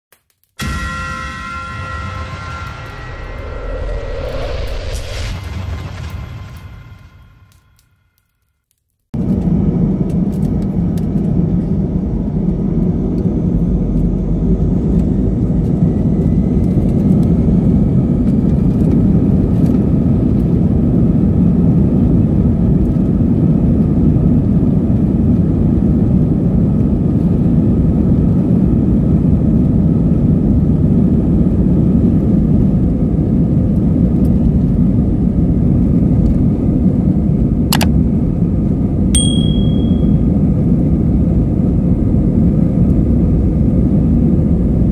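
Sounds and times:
faint rising whine: 0.6 - 7.9
jet engines rumbling: 0.6 - 7.9, 9.2 - 44.9
sharp click: 37.7 - 37.9
short high beep: 39.2 - 40.2.

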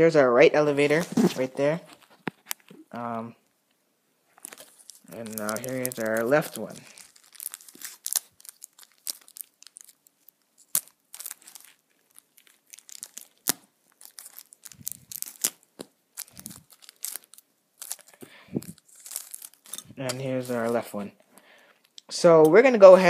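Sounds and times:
plastic bag crinkling: 4.3 - 22.0.

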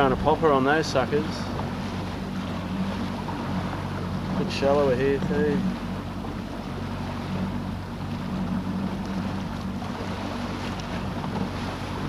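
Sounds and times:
outboard motor running: 0.0 - 12.0
rush of wind and water: 0.0 - 12.0.

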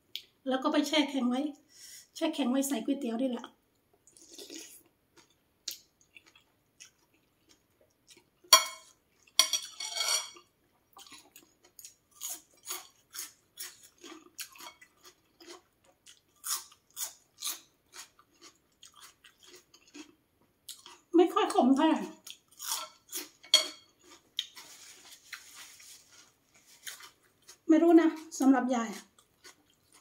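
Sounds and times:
chewing with mouth smacks: 4.1 - 8.4, 10.9 - 21.1, 22.2 - 25.5, 29.0 - 30.0.

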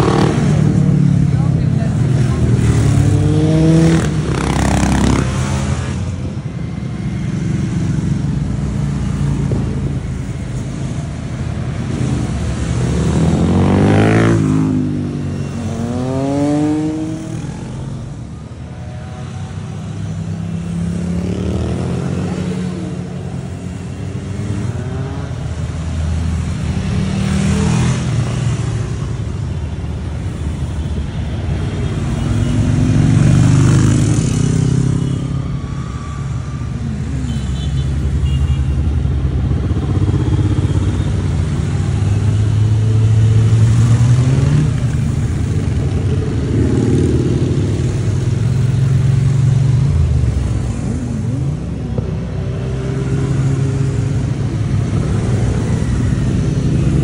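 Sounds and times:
motorcycles riding past: 0.0 - 18.3, 31.6 - 57.0.

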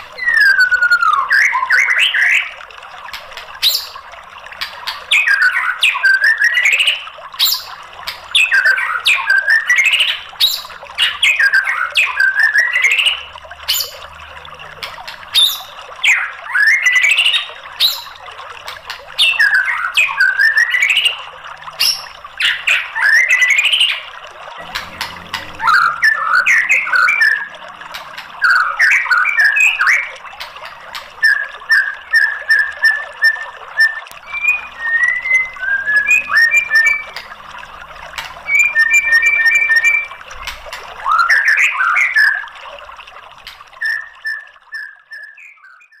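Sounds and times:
bird singing whistles: 0.2 - 2.6, 5.1 - 7.7, 8.3 - 14.0, 19.2 - 21.2, 25.6 - 27.5, 28.4 - 30.2, 31.2 - 37.2, 38.5 - 40.2, 43.8 - 46.0.

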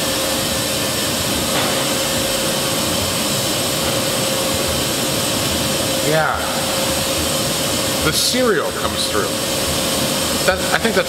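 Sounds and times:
machinery drone: 0.0 - 11.0.

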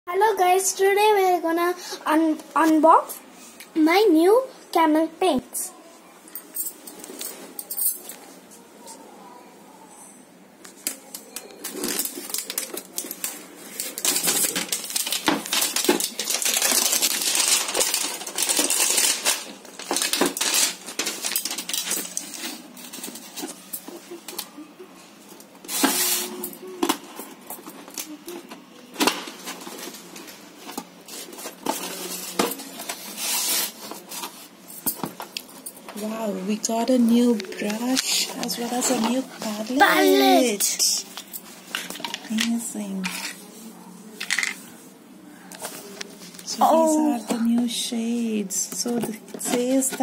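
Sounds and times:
plastic wrap crinkling: 10.8 - 24.6, 25.7 - 34.5.

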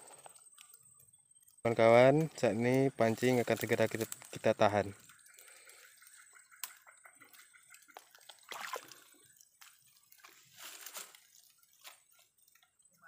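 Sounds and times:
water sloshing and splashing: 8.2 - 10.4.

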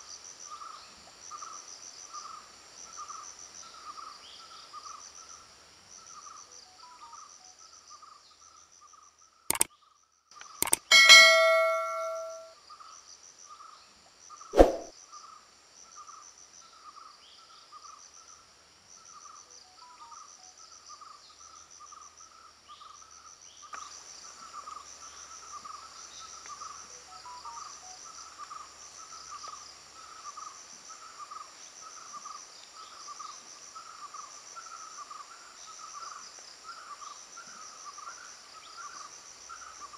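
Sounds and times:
ringing metallic clang: 10.6 - 12.5
sharp clicks: 10.6 - 12.5.

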